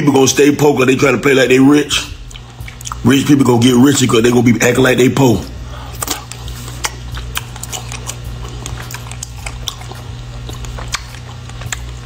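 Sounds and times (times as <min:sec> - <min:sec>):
steady low hum: 0:00.0 - 0:12.0
man chewing food: 0:02.1 - 0:03.1, 0:05.6 - 0:12.0
mouth clicks and smacks: 0:02.3 - 0:03.0, 0:05.9 - 0:12.0.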